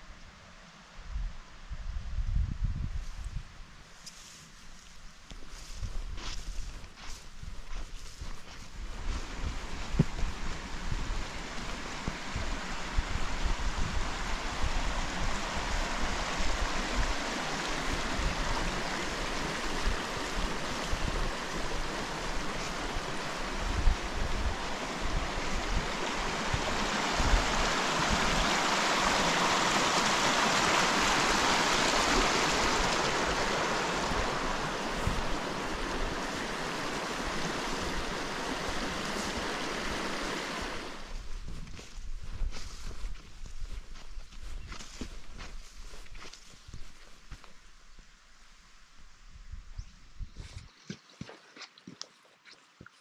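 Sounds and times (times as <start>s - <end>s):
creek splashing over rocks: 8.9s - 41.1s.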